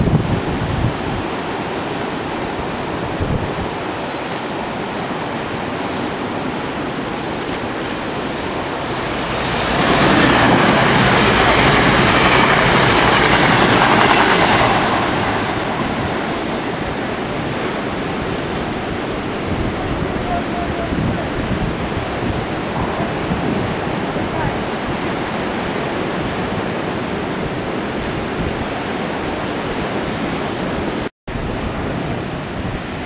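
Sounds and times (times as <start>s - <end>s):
sea surf rushing: 0.0s - 33.0s
wind on microphone: 0.0s - 33.0s
train passing at speed: 8.0s - 33.0s.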